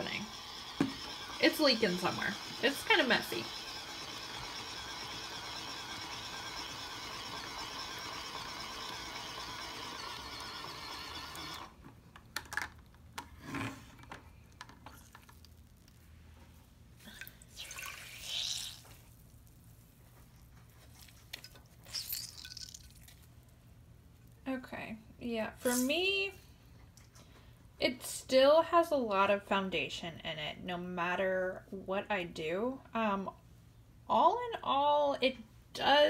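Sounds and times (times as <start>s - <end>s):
small motor whine: 0.0s - 11.8s.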